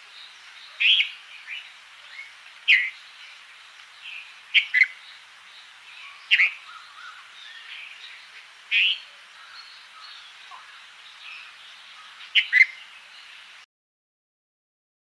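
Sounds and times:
faint birdsong chatter: 0:00.0 - 0:13.6.

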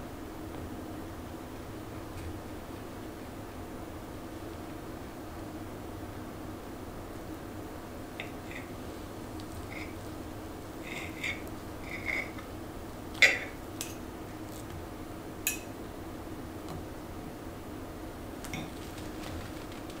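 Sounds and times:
low room hum: 0:00.0 - 0:20.0
cutlery scraping a ceramic plate: 0:10.8 - 0:12.5.

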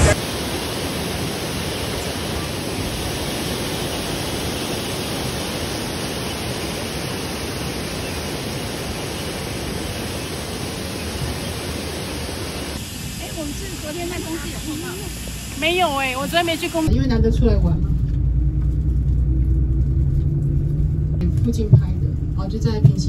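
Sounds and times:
river and waterfall rushing: 0:00.0 - 0:16.9.

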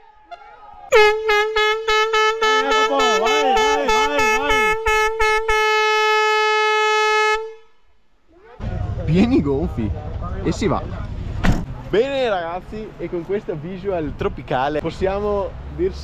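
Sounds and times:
air horn blast: 0:00.3 - 0:07.8.

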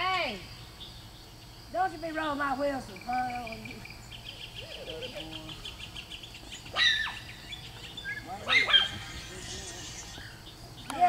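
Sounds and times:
crickets chirping: 0:00.0 - 0:11.0
high-pitched squeal: 0:08.3 - 0:10.4.

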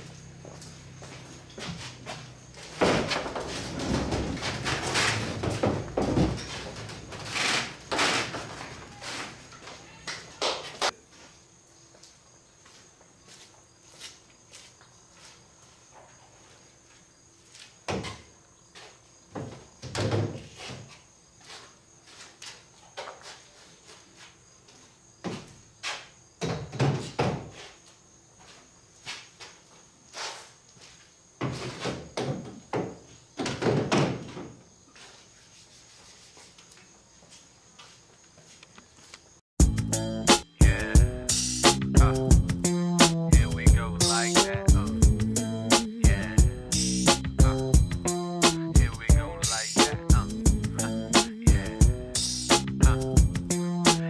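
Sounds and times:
footsteps on concrete: 0:00.3 - 0:03.6, 0:08.9 - 0:16.1.

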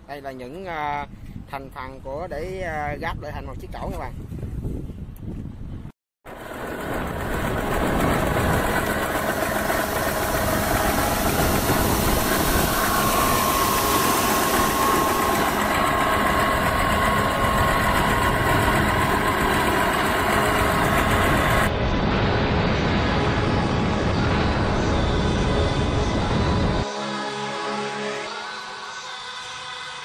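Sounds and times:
diesel engine chugging: 0:06.3 - 0:21.7
faint steady whine: 0:06.3 - 0:21.7.

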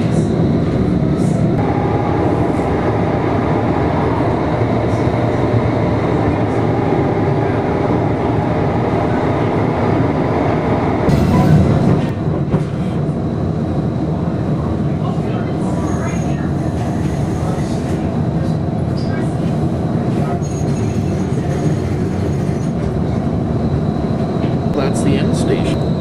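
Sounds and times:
streetcar rumbling on track: 0:00.0 - 0:26.0.

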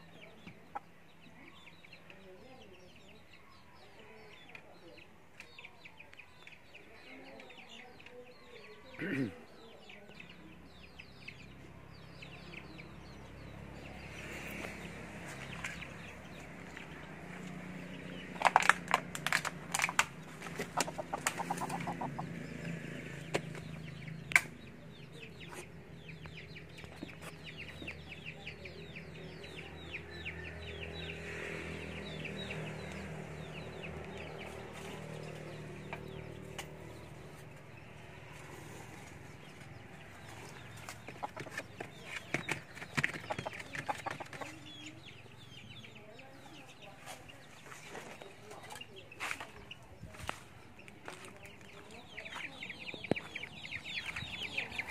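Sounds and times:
chicken clucking: 0:19.7 - 0:22.6, 0:38.4 - 0:54.9.

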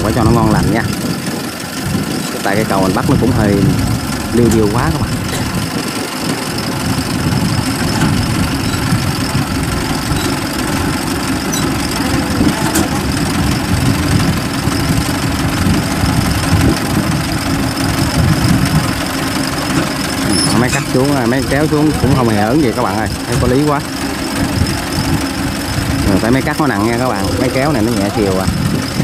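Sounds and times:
combine harvesters running: 0:00.0 - 0:29.0
tractor diesel engine: 0:00.0 - 0:29.0.

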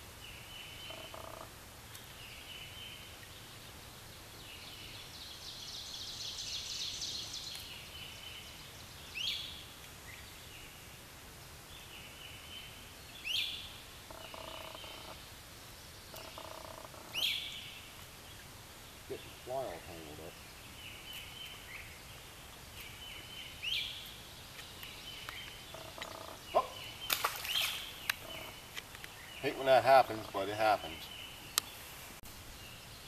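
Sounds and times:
loud slurred bird calls: 0:00.8 - 0:01.5, 0:14.1 - 0:15.2, 0:16.1 - 0:17.7, 0:25.3 - 0:31.2
low pulsing frog croak: 0:00.8 - 0:01.5, 0:14.0 - 0:15.2, 0:16.1 - 0:17.4, 0:25.7 - 0:26.9, 0:28.1 - 0:28.7.

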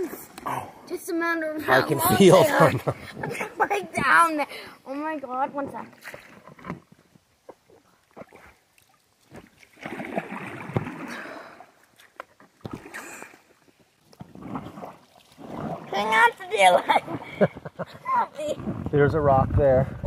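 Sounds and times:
paddle swishing through water: 0:05.2 - 0:18.9.

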